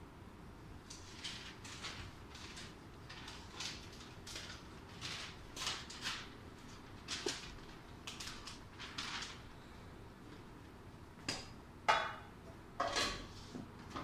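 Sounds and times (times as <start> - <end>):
paper rustling: 0.9 - 9.6
metal pots and lids clanking: 11.9 - 13.3.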